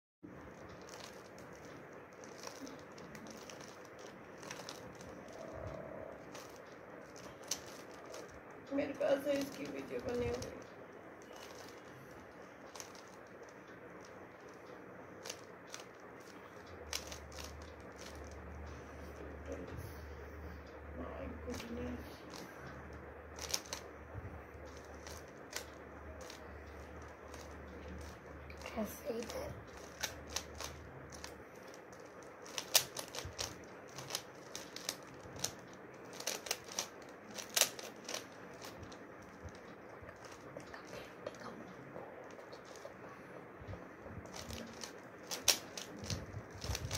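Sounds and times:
low hum: 0.2 - 46.9
puzzle cube clicks: 0.6 - 8.4, 11.2 - 14.5, 15.2 - 18.4, 23.4 - 23.9, 24.7 - 41.6, 43.7 - 46.9.

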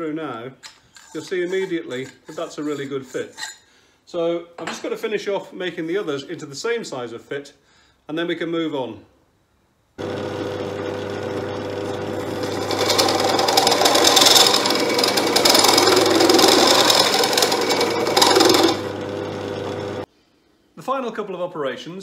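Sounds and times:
drill press motor running: 10.0 - 20.0
drill bit grinding into metal: 10.7 - 20.0.

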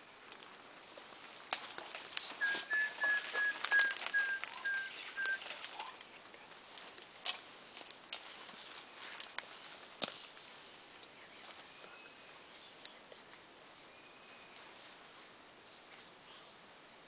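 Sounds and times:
clicks and rustles: 1.1 - 10.5
bird whistling short notes: 2.3 - 6.0.

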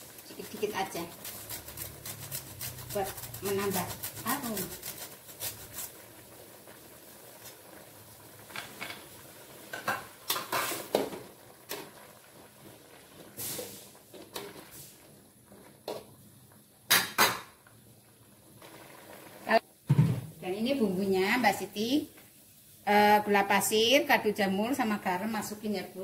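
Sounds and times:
metal spoon scraping a wok: 1.2 - 5.9.

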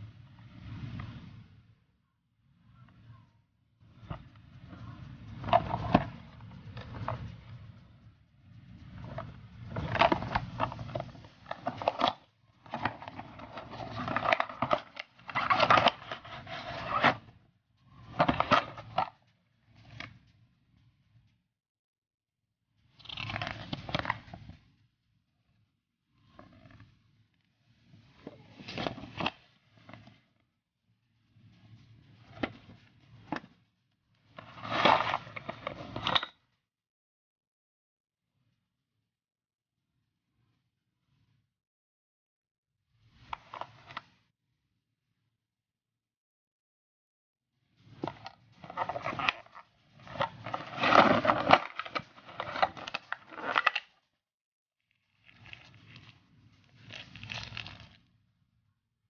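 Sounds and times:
plastic packaging crinkling: 56.8 - 58.0.

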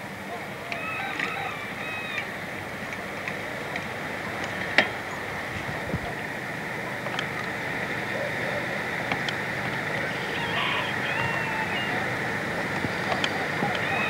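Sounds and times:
outdoor background noise: 0.0 - 14.0
clicks: 12.7 - 13.9.

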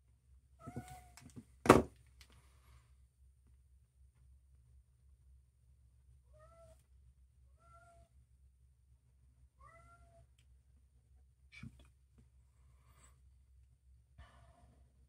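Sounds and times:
cat meowing faintly: 0.6 - 1.2, 6.3 - 6.8, 7.6 - 8.1, 9.6 - 10.3.

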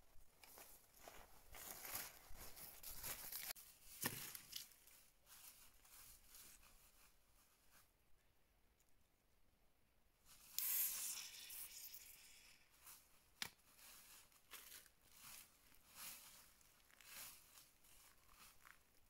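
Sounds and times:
packaging crinkling and rustling: 0.4 - 5.6.

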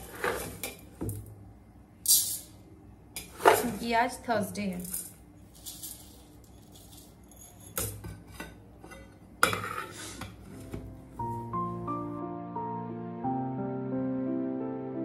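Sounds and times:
metal pots and utensils clanking: 4.9 - 10.7
soft background music: 10.4 - 15.0.

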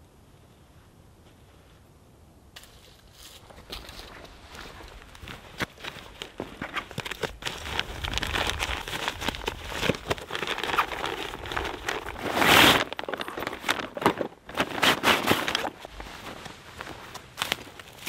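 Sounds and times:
nylon backpack crinkling: 3.7 - 18.0.

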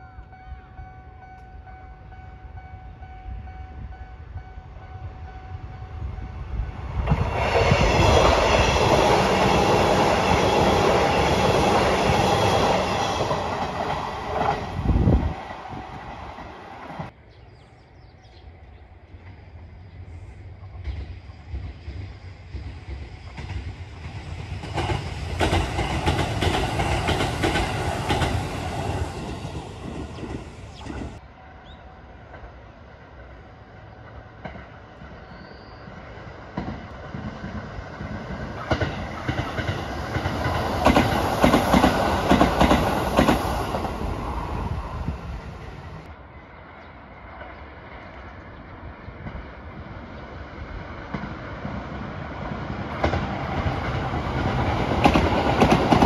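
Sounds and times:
electric train passing: 0.0 - 56.0.

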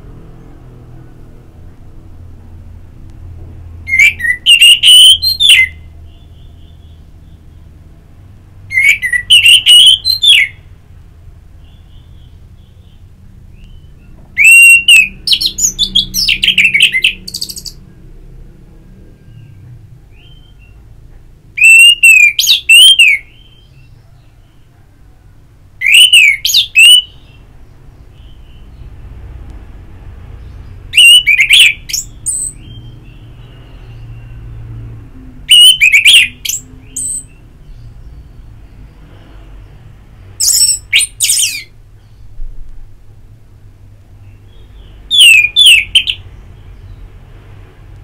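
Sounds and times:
thrush singing whistled phrases: 3.9 - 5.9, 8.7 - 10.6, 13.6 - 17.8, 21.6 - 23.7, 25.8 - 27.2, 30.9 - 33.0, 35.4 - 37.4, 40.4 - 41.7, 45.1 - 46.2.

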